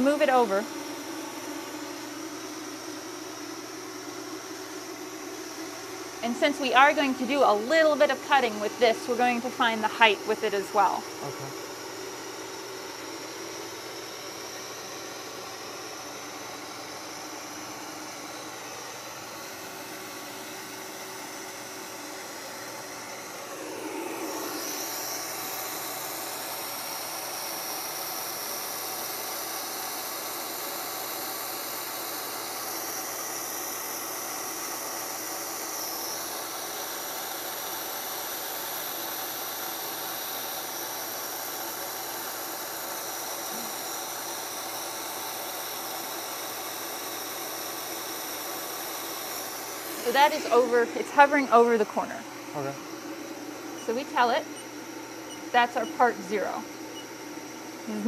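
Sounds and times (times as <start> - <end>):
cnc router machinery whirring: 0.0 - 58.0
high machine whine: 0.0 - 58.0.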